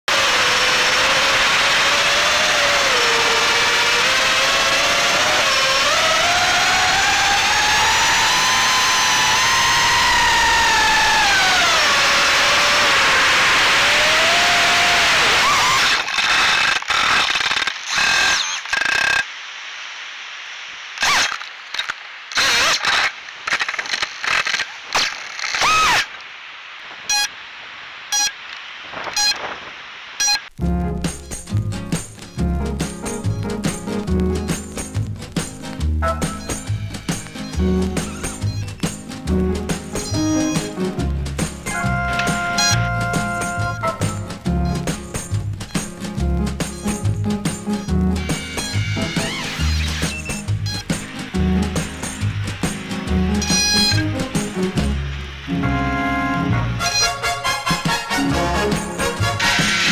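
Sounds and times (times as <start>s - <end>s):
drone motors whining: 0.1s - 19.4s, 20.9s - 26.2s, 36.2s - 39.0s, 39.6s - 40.8s, 41.6s - 55.6s, 58.7s - 59.9s
short beeps: 27.1s - 27.3s, 28.1s - 28.4s, 29.1s - 29.4s, 30.2s - 30.5s, 37.4s - 38.8s, 40.0s - 40.7s, 42.5s - 42.9s, 49.6s - 50.9s, 53.4s - 54.0s
propeller and wind hiss: 31.2s - 59.9s.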